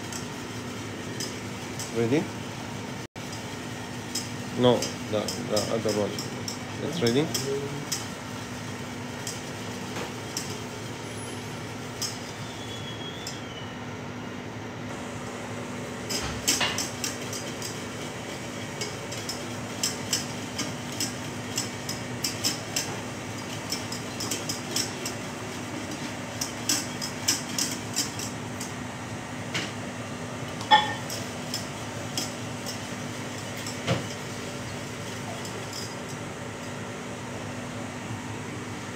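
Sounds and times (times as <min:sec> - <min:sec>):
whisk clinking against pan: 0:16.4 - 0:28.7.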